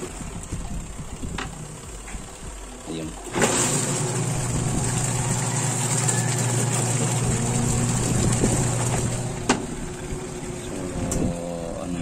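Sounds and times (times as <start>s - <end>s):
washing machine motor hum: 0.0s - 12.0s
water churning and sloshing: 3.2s - 11.4s.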